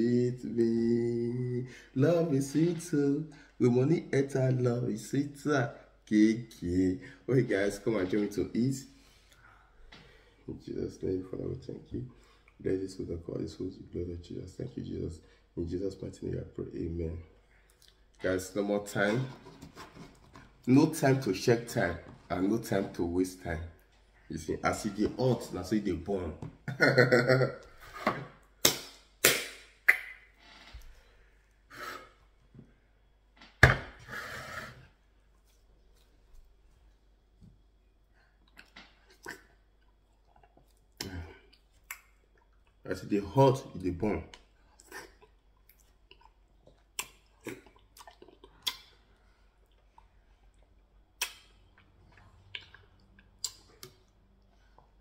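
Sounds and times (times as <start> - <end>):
wet eating clicks and smacks: 38.4 - 42.8, 44.3 - 49.0, 49.6 - 54.9.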